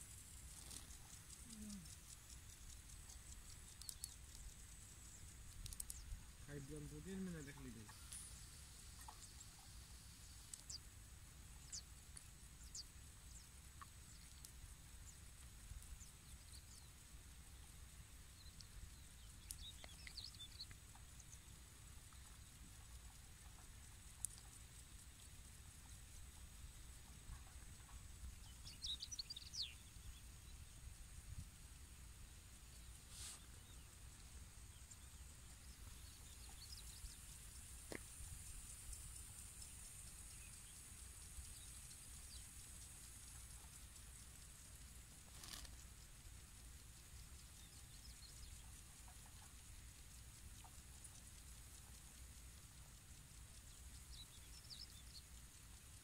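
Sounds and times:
faint high hiss: 0.0 - 56.0
faint high bird chirps: 0.6 - 10.9, 11.6 - 24.8, 25.8 - 31.0, 32.7 - 44.0, 46.9 - 56.0
brief rustle: 45.3 - 45.8.

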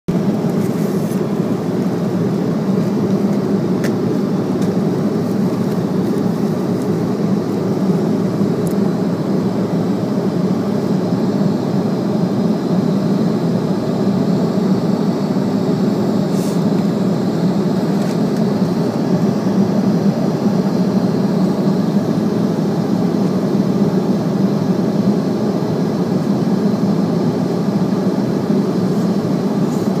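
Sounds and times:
jet airliner cabin rumble: 0.1 - 30.0.

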